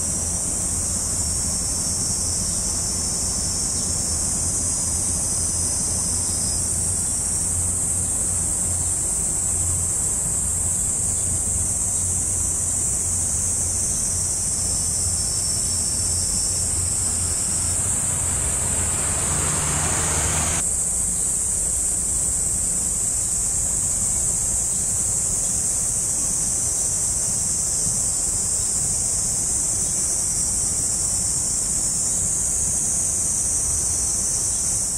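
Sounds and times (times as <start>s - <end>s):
insects calling: 0.0s - 34.9s
rushing noise: 16.2s - 20.6s.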